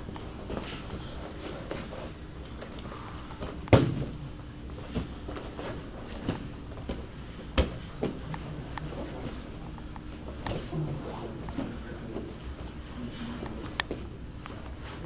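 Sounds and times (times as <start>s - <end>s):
bodies scuffling on foam mats: 0.1s - 15.0s
sharp thumps on mats: 3.4s - 4.2s.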